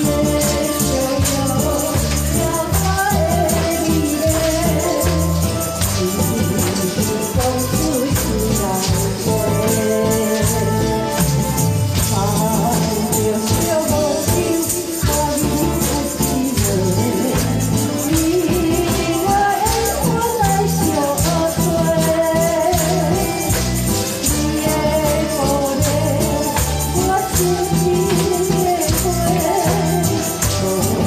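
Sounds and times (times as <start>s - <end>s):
backing track with steady beat: 0.0s - 31.0s
tambourine-like jingle: 0.0s - 31.0s
woman singing into a microphone: 0.0s - 31.0s.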